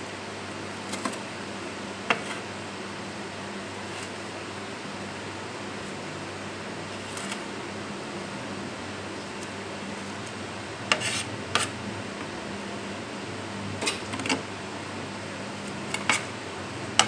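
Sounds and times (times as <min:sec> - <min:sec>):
steady background hum: 0:00.0 - 0:17.0
knife scraping on a plate: 0:02.1 - 0:02.5, 0:10.9 - 0:11.8, 0:15.9 - 0:16.4.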